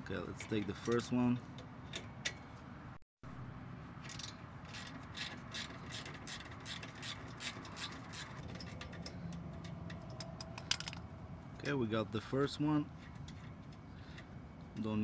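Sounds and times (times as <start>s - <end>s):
ratchet wrench clicking: 4.1s - 9.1s.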